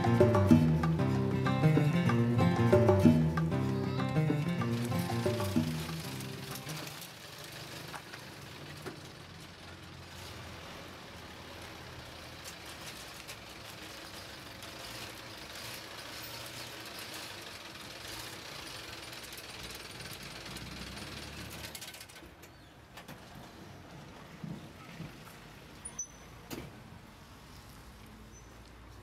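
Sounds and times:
fast ticking mechanical rattle: 0:16.8 - 0:22.2.

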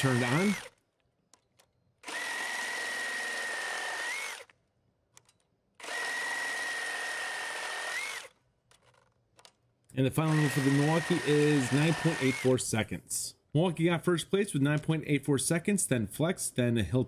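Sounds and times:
reciprocating saw cutting wood: 0:00.0 - 0:00.8, 0:02.0 - 0:04.5, 0:05.8 - 0:08.4, 0:10.2 - 0:12.6.

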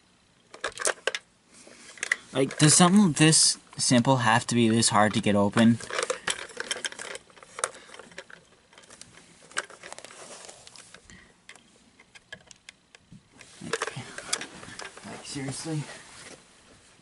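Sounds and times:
plastic clicks and knocks: 0:11.5 - 0:14.9.

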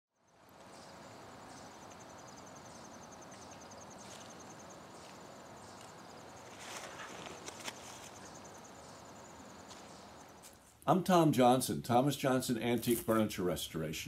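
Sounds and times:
crickets trilling: 0:00.2 - 0:10.7
brief rustling: 0:06.5 - 0:08.3.

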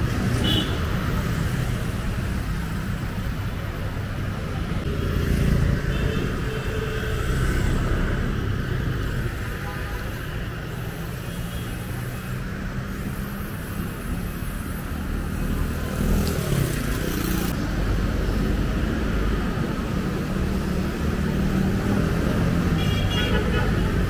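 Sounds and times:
motorcycle engines passing: 0:00.0 - 0:09.6, 0:10.5 - 0:24.0
car engines passing: 0:10.5 - 0:22.8.

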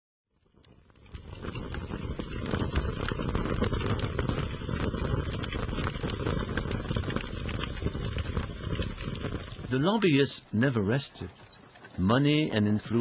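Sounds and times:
fire crackling: 0:00.4 - 0:13.0.

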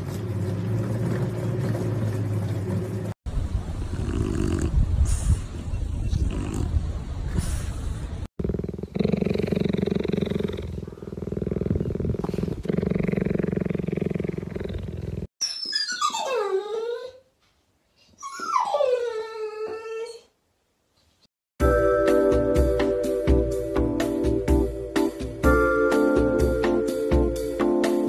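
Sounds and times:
cheetah purring: 0:03.9 - 0:04.8, 0:08.4 - 0:15.3
dog whining howls: 0:15.7 - 0:17.2, 0:18.2 - 0:20.3.

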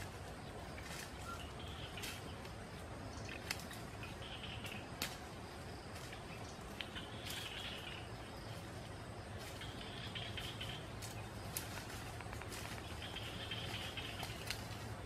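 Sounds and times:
faint bird chirping: 0:00.0 - 0:15.0
footsteps crunching through dry leaves: 0:00.0 - 0:15.0
insects chirping: 0:00.0 - 0:15.0
twigs snapping: 0:01.9 - 0:07.7, 0:10.4 - 0:15.0.

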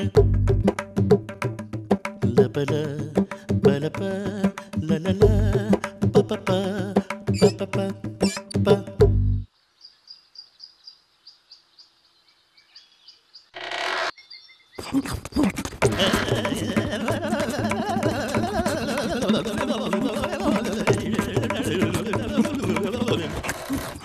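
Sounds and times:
high-pitched chirping: 0:07.3 - 0:07.6, 0:08.2 - 0:08.6.

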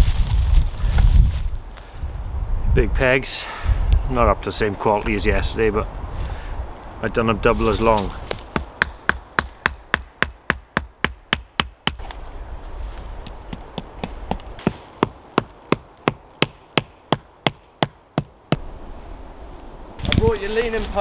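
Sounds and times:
hatchet knocking wooden tent pegs: 0:08.3 - 0:12.0, 0:13.2 - 0:18.3.

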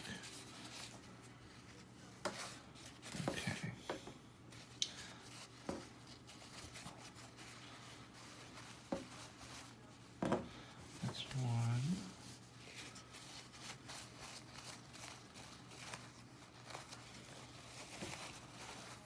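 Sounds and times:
paper napkin unwrapped: 0:04.5 - 0:19.0.

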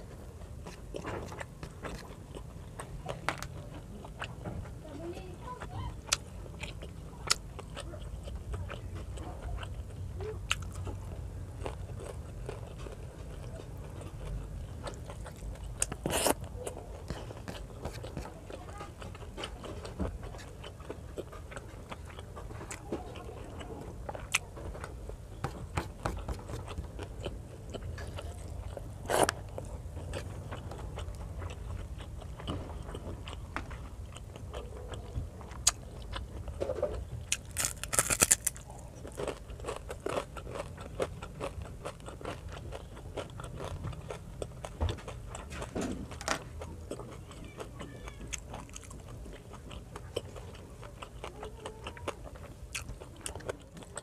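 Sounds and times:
crunching food: 0:00.0 - 0:54.0
wet chewing and lip smacks: 0:06.0 - 0:24.5, 0:25.4 - 0:47.7, 0:48.3 - 0:54.0.

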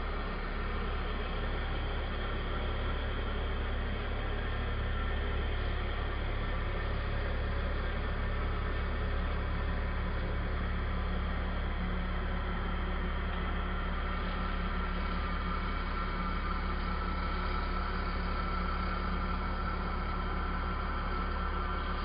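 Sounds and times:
router spindle drone: 0:00.0 - 0:22.0.

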